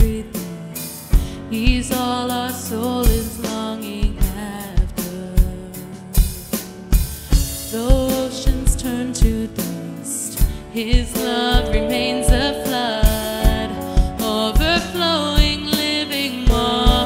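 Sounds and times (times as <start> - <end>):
drum kit beat: 0.0 - 17.0
worship band music: 0.0 - 17.0
wavering melodic line: 11.7 - 14.8.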